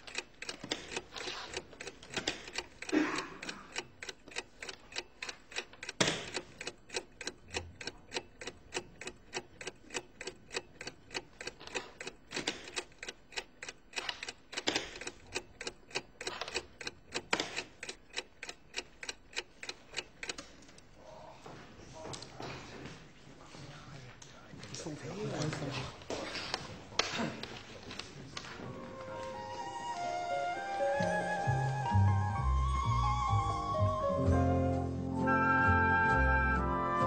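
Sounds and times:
mechanical clock ticking: 0:00.0 - 0:20.8.

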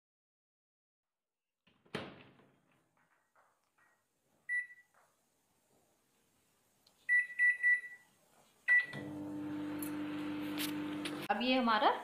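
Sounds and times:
microwave keypad beeps: 0:04.5 - 0:04.9, 0:07.1 - 0:08.1, 0:08.7 - 0:09.0
microwave humming: 0:08.8 - 0:11.3.

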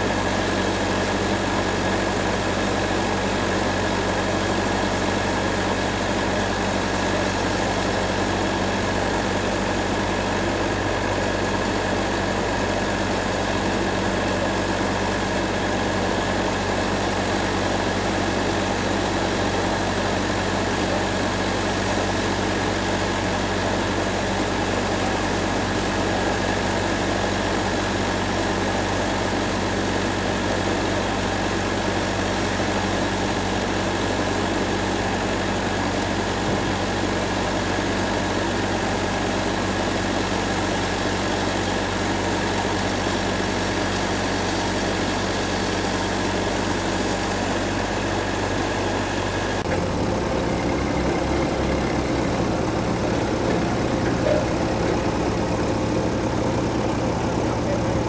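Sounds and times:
band saw cutting log: 0:49.0 - 0:58.0.

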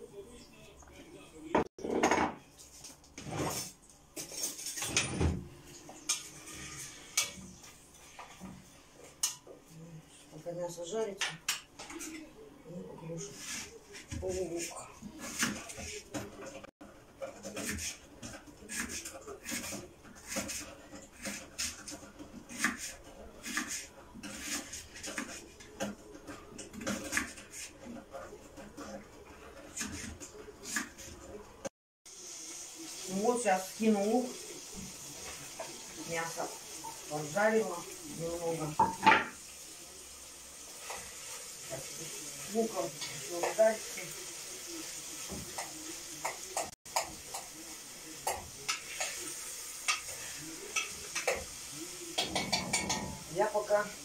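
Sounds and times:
spoon and lid clanking on pot: 0:52.2 - 0:53.3.

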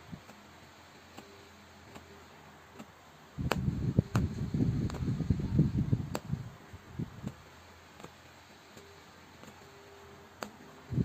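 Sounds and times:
punch needle tapping fabric: 0:01.1 - 0:05.1, 0:06.1 - 0:06.4, 0:07.2 - 0:10.8
sharp clicks: 0:10.4 - 0:10.6.

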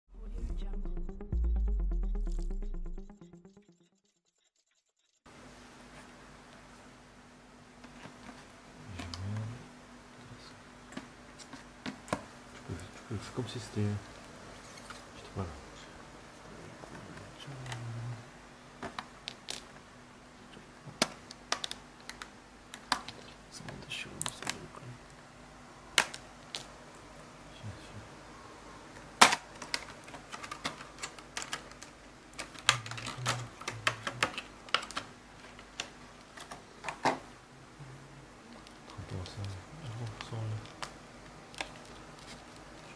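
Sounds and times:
plastic packaging crackling: 0:29.4 - 0:36.6, 0:38.5 - 0:42.9.

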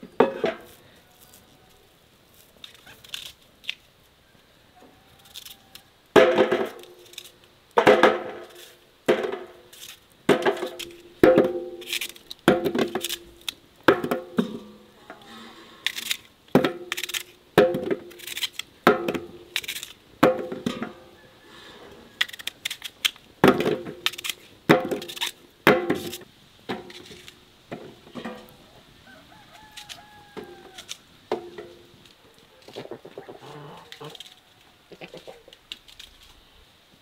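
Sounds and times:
chicken calling: 0:04.2 - 0:06.0, 0:28.5 - 0:31.2, 0:32.3 - 0:35.7.

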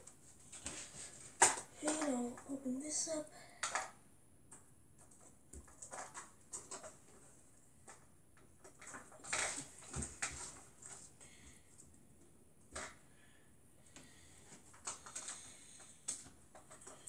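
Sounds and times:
plastic toy clicks and taps: 0:03.6 - 0:04.0.

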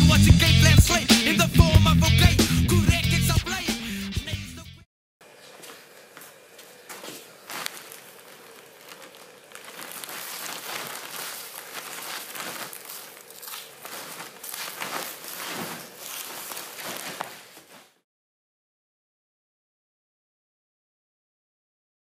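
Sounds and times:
plastic bag rustling: 0:05.2 - 0:18.0
snacks crunching on concrete: 0:07.0 - 0:17.5.

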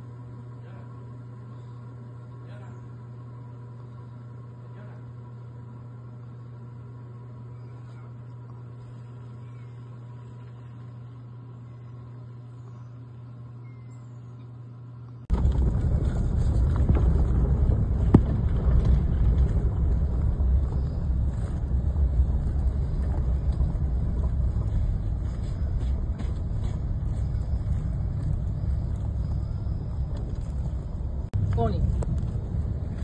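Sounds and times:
wind buffeting microphone: 0:15.3 - 0:33.0.

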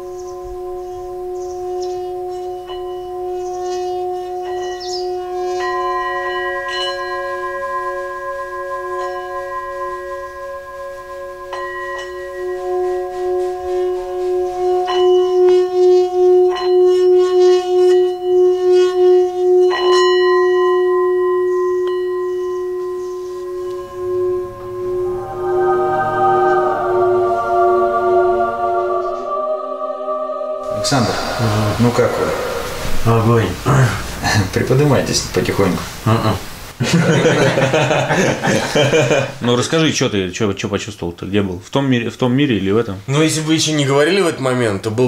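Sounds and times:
singing bowls ringing: 0:00.0 - 0:35.0.

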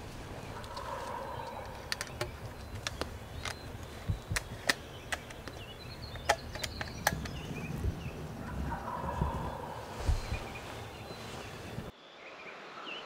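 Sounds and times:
footsteps snapping twigs and leaves: 0:00.0 - 0:07.4.

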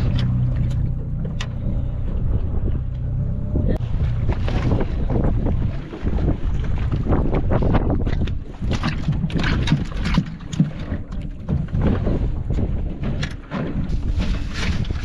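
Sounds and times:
constant low rumble: 0:00.0 - 0:15.0
wind buffeting microphone: 0:00.0 - 0:15.0
knocks and splashes against hull: 0:03.8 - 0:15.0.

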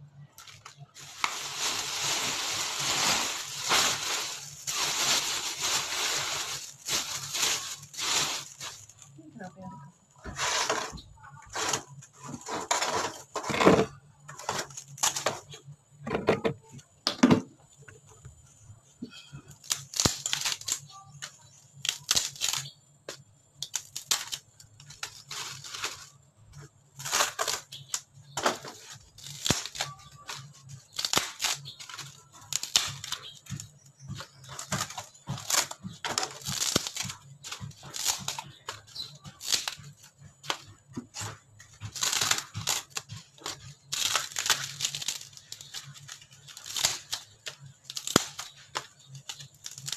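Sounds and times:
wood cracking and tearing: 0:27.0 - 0:33.7, 0:34.4 - 0:39.9, 0:40.5 - 0:49.9.

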